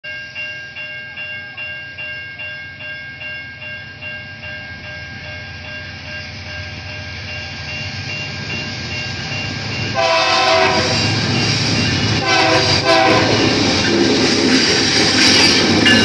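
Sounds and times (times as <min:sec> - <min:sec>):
warning bell ringing: 0:00.1 - 0:12.2, 0:15.7 - 0:16.0
diesel locomotive rumble: 0:04.0 - 0:16.0.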